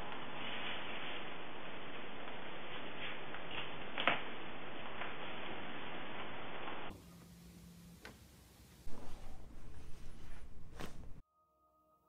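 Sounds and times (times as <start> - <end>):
steady hiss: 0.0 - 11.2
low hum: 8.9 - 11.2.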